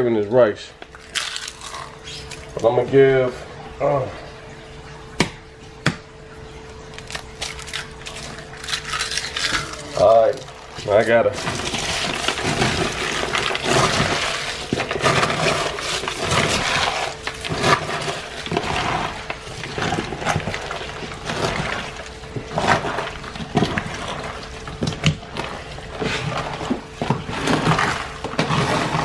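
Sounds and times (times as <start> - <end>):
wet squelching: 0.9 - 2.8
eggshells crackling: 0.9 - 2.9, 6.9 - 29.0.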